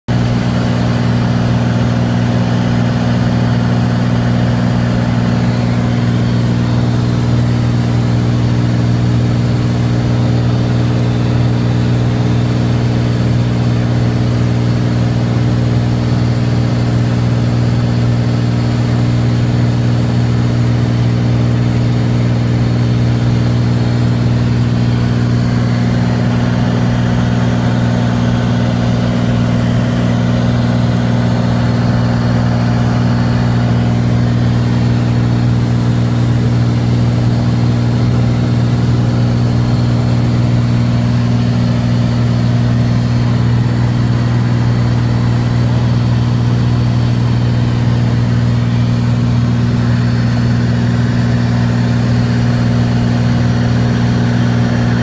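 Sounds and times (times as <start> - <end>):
propeller plane engine droning: 0.1 - 55.0.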